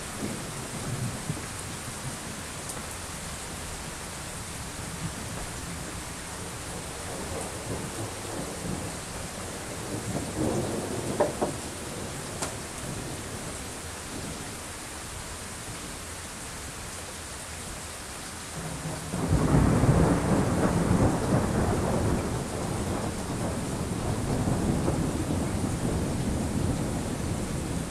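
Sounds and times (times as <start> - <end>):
low rumble of thunder: 0.0 - 2.5, 4.6 - 14.6, 18.6 - 27.9
steady rain: 0.0 - 27.9.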